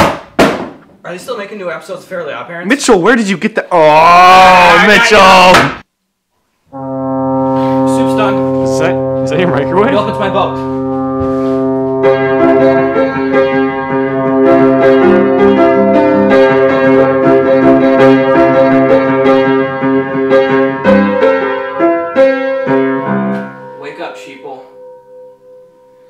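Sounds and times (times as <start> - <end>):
upright piano playing: 6.8 - 26.0.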